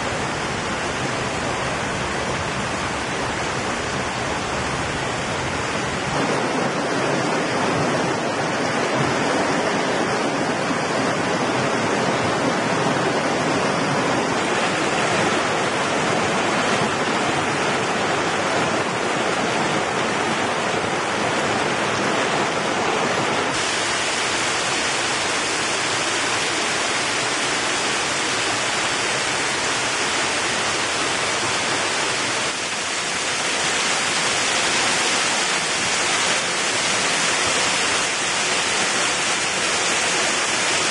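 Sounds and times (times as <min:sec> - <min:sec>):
stream and waterfall rushing: 0:00.0 - 0:40.9.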